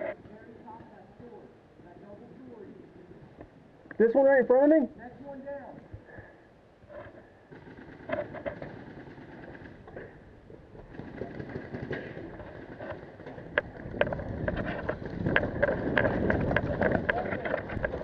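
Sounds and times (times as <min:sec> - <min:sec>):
sharp irregular clicks and knocks: 0:06.9 - 0:10.2, 0:10.8 - 0:18.0
gear rattling: 0:10.9 - 0:18.0.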